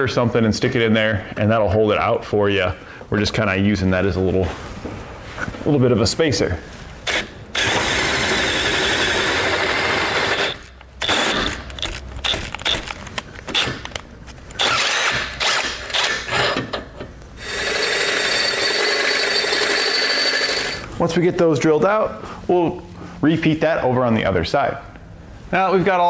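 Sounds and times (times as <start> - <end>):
cordless drill drilling into metal: 7.1 - 12.4, 14.6 - 16.6, 17.4 - 20.8.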